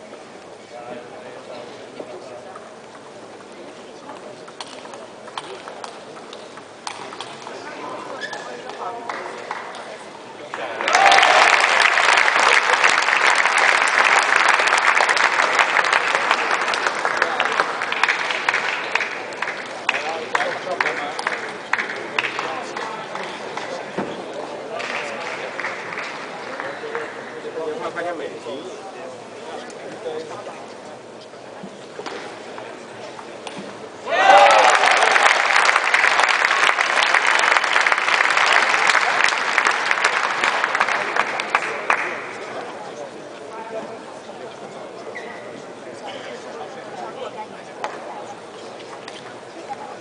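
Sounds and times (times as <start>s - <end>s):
crowd voices: 0.0s - 50.0s
crowd applauding: 10.4s - 23.8s, 24.8s - 27.2s, 34.1s - 42.8s.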